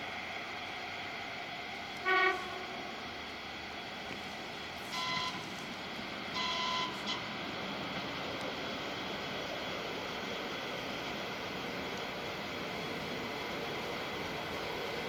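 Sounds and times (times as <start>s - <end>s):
train running noise: 0.0s - 15.0s
low train horn blast: 2.0s - 3.0s, 4.8s - 5.6s, 6.4s - 7.3s.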